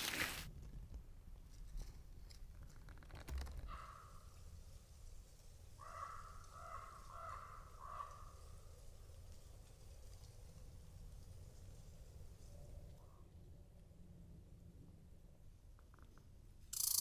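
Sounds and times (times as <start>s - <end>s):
crow cawing: 3.7s - 4.2s, 5.8s - 8.5s.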